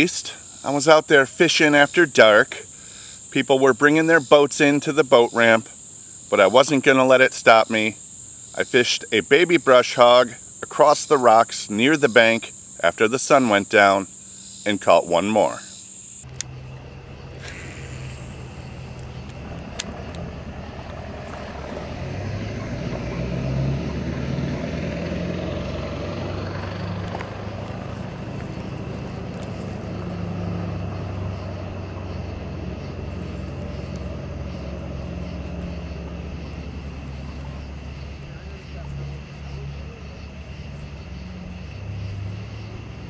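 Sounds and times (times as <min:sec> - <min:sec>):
boat motor droning: 0:16.2 - 0:43.0.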